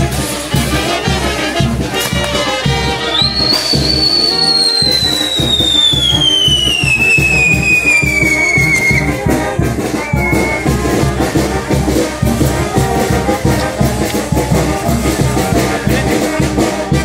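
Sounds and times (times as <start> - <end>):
brass band music: 0.0 - 17.0
drum beat: 0.0 - 17.0
whistling firework: 2.0 - 9.2, 9.9 - 11.0.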